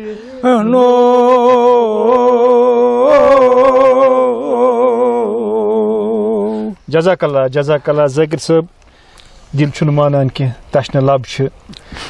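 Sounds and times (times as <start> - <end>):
man chanting: 0.0 - 8.6.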